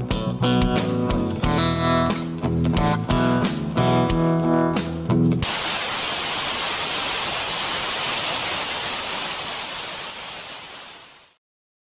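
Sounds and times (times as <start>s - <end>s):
blues guitar music: 0.0s - 5.4s
television static hiss: 5.4s - 11.4s.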